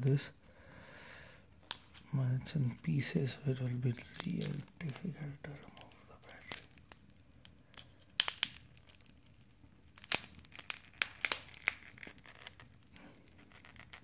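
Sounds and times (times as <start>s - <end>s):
adhesive tearing: 3.9s - 14.0s
screen glass cracking: 4.0s - 14.0s.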